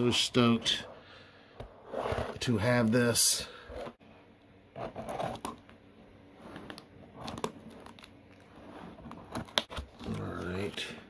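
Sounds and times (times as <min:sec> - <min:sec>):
cardboard rustling and scraping: 0:06.4 - 0:10.8.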